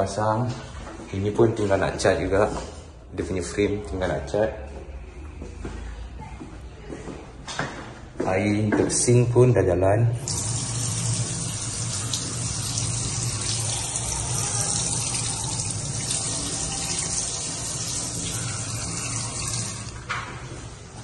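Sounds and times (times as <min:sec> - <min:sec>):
tap water running into steel sink: 0:10.2 - 0:20.1.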